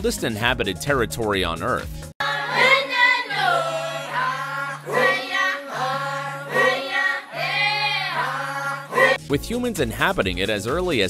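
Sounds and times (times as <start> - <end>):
group singing in chorus: 2.2 - 9.2.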